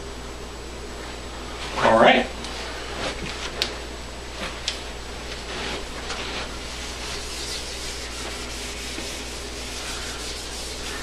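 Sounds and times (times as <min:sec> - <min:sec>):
eraser rubbing on whiteboard: 0:05.4 - 0:11.0.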